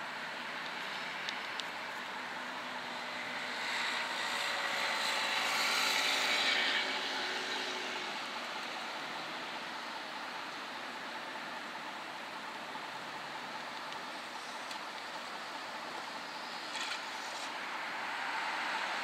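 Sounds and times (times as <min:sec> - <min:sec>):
city street traffic: 0:00.0 - 0:19.0
vehicle passing: 0:03.1 - 0:08.4.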